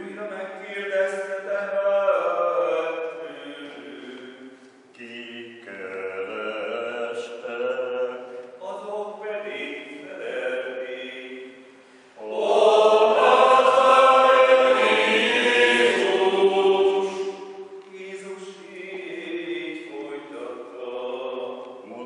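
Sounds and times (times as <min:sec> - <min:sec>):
men's choir chanting: 0:12.2 - 0:21.8.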